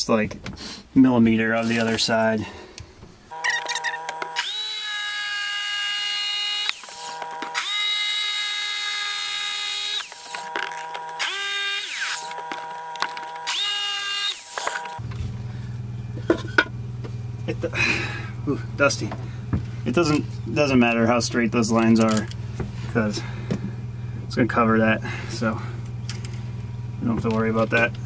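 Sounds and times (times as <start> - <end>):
power saw whining: 3.3 - 16.8.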